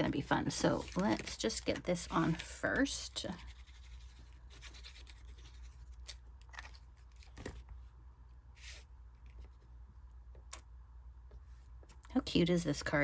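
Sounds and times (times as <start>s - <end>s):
paper rustle: 0.4s - 7.8s.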